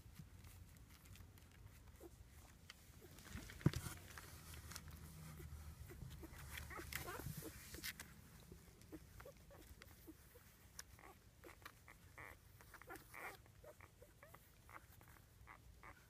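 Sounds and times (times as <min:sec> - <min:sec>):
soft rustling: 0:00.0 - 0:16.0
puppies squeaking: 0:05.3 - 0:08.0, 0:08.8 - 0:16.0.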